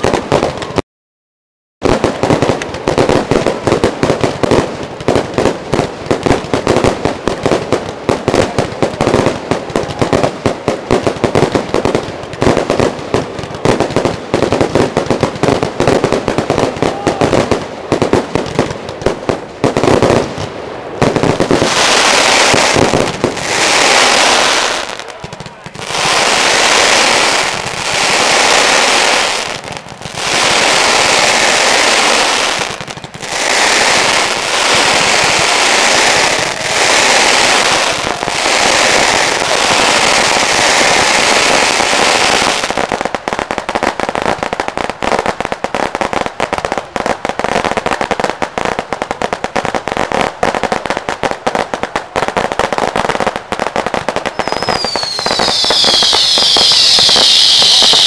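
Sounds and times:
fireworks crackling rapidly: 0:00.0 - 0:00.8, 0:01.8 - 0:58.0
firework fountains hissing: 0:20.4 - 0:45.4, 0:46.4 - 0:58.0
fireworks whistling falling in pitch: 0:54.2 - 0:58.0.

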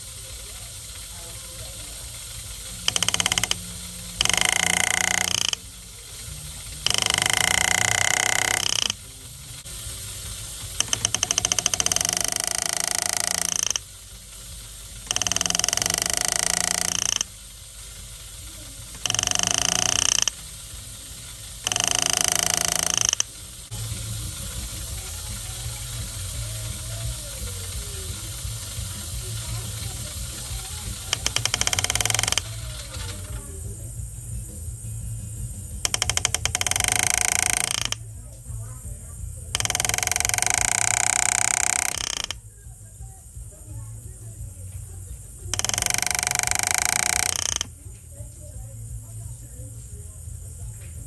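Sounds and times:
engraving tool buzzing: 0:00.0 - 0:34.6, 0:35.2 - 0:47.9
low steady hum: 0:47.7 - 0:51.0.

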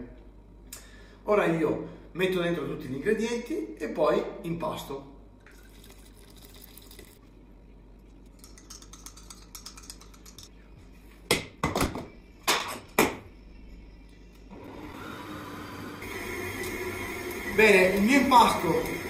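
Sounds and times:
pouring into a metal bowl: 0:05.5 - 0:07.2.

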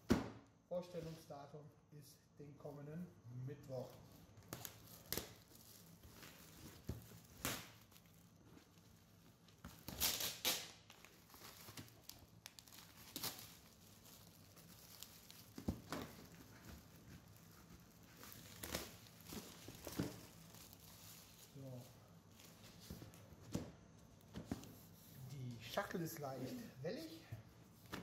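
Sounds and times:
plastic film tearing and crinkling: 0:03.7 - 0:23.0.

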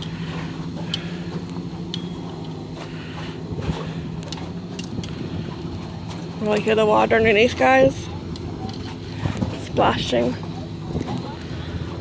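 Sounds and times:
low motor hum: 0:00.0 - 0:12.0
water sloshing and splashing: 0:00.0 - 0:12.0.

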